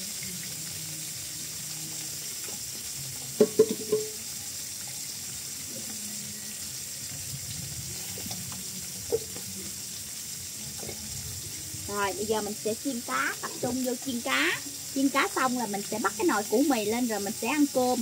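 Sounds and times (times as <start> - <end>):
fish sizzling in oil: 0.0 - 18.0
cookware clanks: 3.4 - 4.2.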